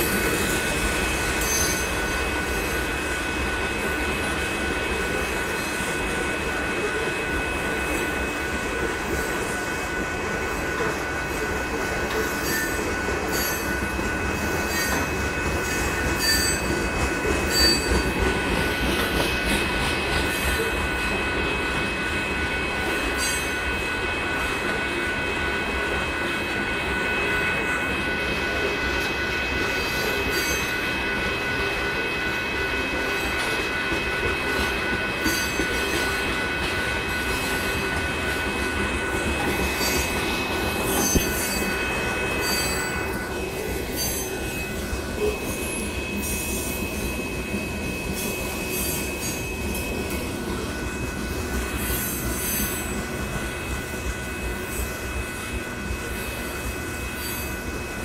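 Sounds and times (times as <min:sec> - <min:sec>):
high wheel squeal: 0:00.0 - 0:02.7, 0:12.1 - 0:16.8, 0:17.4 - 0:18.1, 0:29.4 - 0:31.1, 0:35.0 - 0:53.6, 0:57.1 - 0:57.7
train wheels rumbling on rails: 0:00.0 - 0:58.0.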